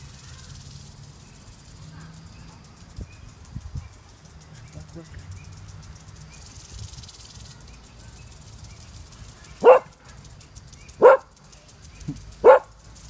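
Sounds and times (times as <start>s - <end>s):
dog barking: 9.6s - 10.0s, 11.0s - 11.3s, 12.4s - 12.8s.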